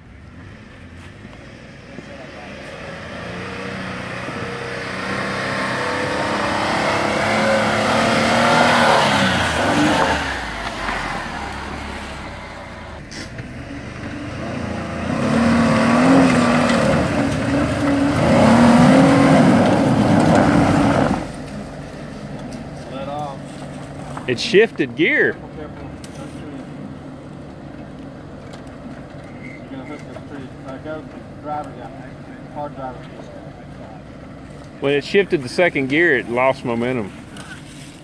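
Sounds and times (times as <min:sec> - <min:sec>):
engines revving hard: 0:00.4 - 0:21.7, 0:22.4 - 0:27.1.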